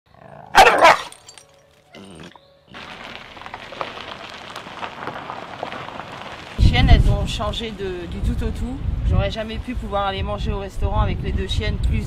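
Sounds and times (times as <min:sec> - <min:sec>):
dog barking: 0:00.5 - 0:01.1.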